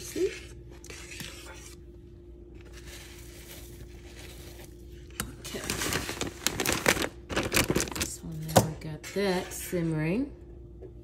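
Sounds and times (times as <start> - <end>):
metal spoon stirring in saucepan: 0.0 - 1.8.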